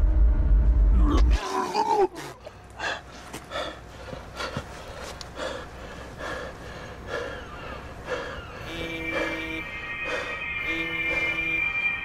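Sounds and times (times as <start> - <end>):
low steady hum: 0.0 - 12.0
person breathing heavily: 2.4 - 11.4.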